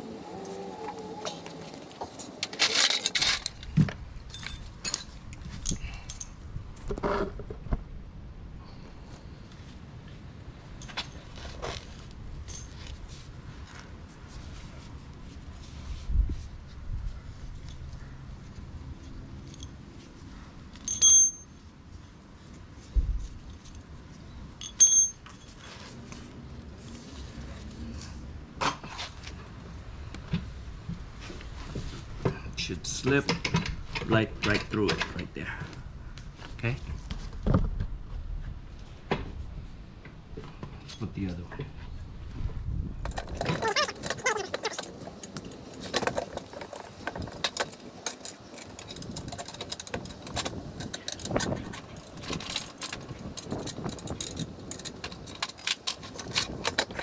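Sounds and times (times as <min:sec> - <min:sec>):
metal parts clinking and rattling: 0:01.3 - 0:06.4, 0:12.4 - 0:12.9, 0:20.7 - 0:21.5, 0:24.6 - 0:25.8, 0:43.0 - 0:57.0
metallic pings of bolts: 0:20.8 - 0:21.5, 0:24.6 - 0:25.4.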